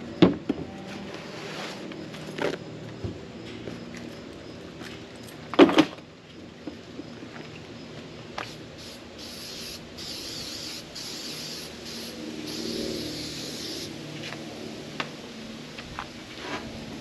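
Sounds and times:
aerosol spray can hissing: 8.4 - 13.9.

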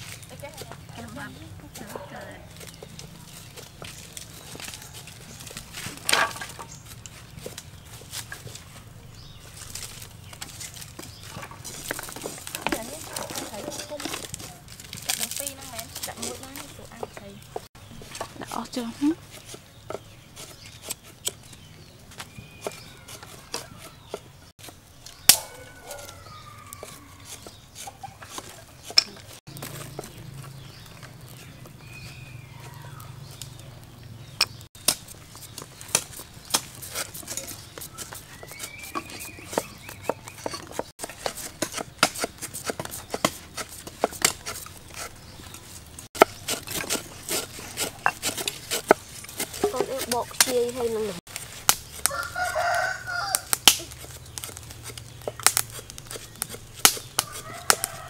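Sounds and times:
wood fire crackling: 0.0 - 58.0
roosters crowing: 0.7 - 7.4, 22.1 - 24.5, 25.3 - 34.2, 37.0 - 40.9, 51.9 - 55.3, 57.0 - 58.0
cleaver chopping on wooden board: 34.4 - 45.1, 46.2 - 50.6, 51.6 - 58.0.

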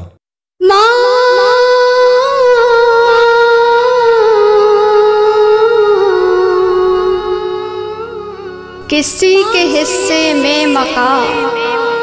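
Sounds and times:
woman humming: 3.1 - 12.0.

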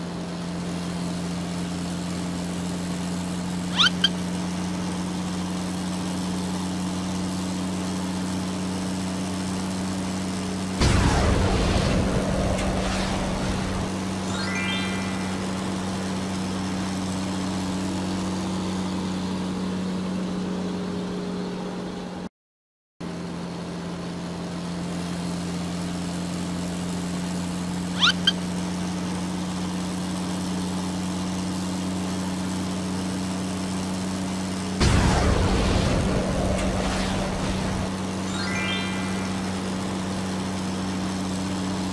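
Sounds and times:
cartoon engine drone: 3.6 - 4.4, 10.8 - 18.3, 28.0 - 28.4, 34.8 - 41.3
short high chirps: 3.7 - 4.2, 14.2 - 16.4, 28.0 - 28.4, 38.2 - 40.2
loud rushing burst: 10.8 - 16.5, 34.8 - 40.3.

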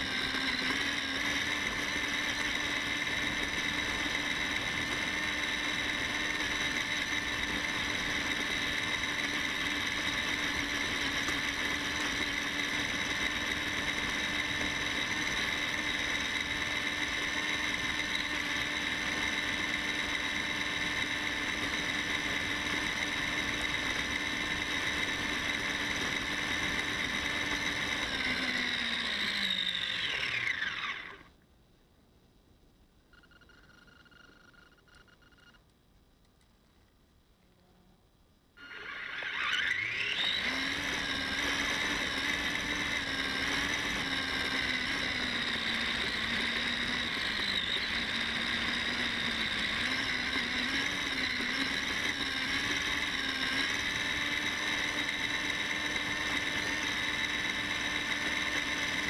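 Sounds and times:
electric motor whining: 0.0 - 31.3, 38.6 - 59.0
wheels rumbling: 0.0 - 31.4.

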